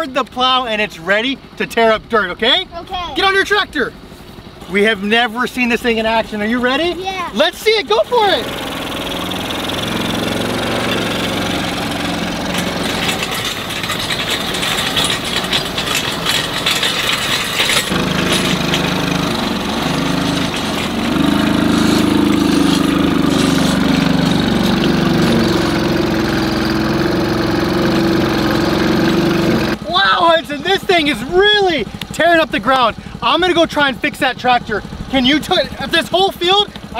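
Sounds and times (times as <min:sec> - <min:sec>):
small tractor engine running: 0:05.5 - 0:36.9
clicks and rattles: 0:09.1 - 0:26.1.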